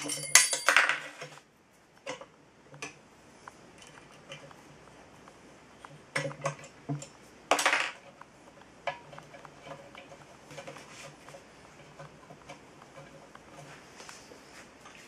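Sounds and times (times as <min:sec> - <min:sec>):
metal clinks and knocks: 0:00.0 - 0:01.4.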